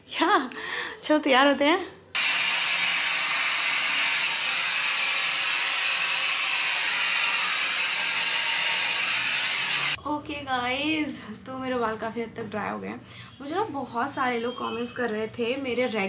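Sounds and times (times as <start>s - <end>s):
hair dryer blowing: 2.2s - 10.0s.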